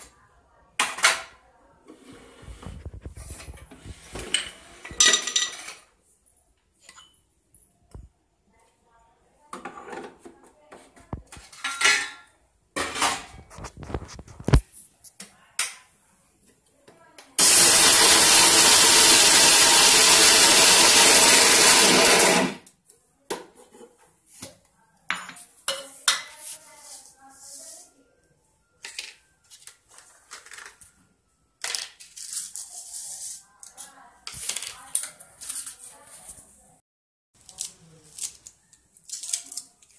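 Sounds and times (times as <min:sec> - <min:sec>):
mixer grinder running: 0:17.4 - 0:22.6.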